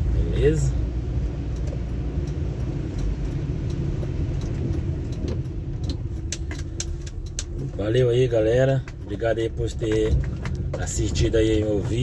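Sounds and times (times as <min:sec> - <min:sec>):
car engine and tyre rumble: 0:00.0 - 0:12.0
sharp ticks: 0:01.4 - 0:11.0.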